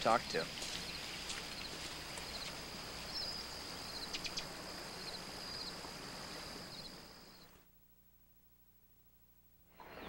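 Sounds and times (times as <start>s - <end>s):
creek water flowing: 0.0s - 7.3s
small bird chirps: 1.6s - 5.7s.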